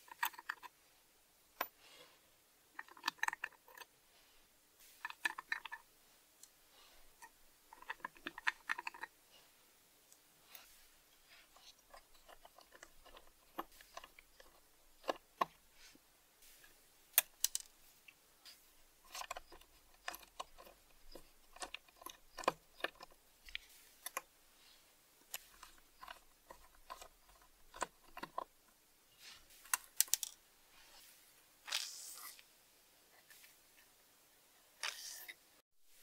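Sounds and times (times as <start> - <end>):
screwdriver turning rusty screw: 5.0 - 5.8, 7.2 - 9.1, 11.4 - 15.6, 19.0 - 24.3, 25.2 - 28.6.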